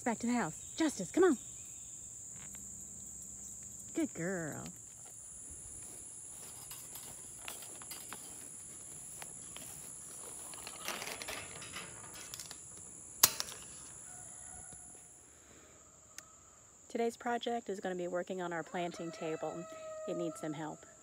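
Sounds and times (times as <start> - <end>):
high-pitched insect chorus: 0.0 - 21.0
soft rustling: 4.8 - 12.8
metal gate hook clicking: 10.6 - 13.9.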